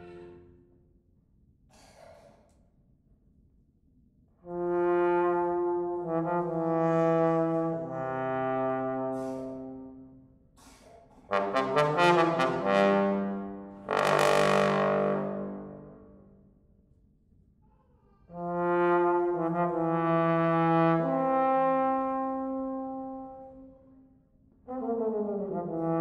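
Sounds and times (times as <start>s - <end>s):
trombone ensemble chords: 4.4s - 10.2s, 11.2s - 16.2s, 18.3s - 23.9s, 24.6s - 26.0s
quick tongued trombone notes: 8.9s - 9.7s.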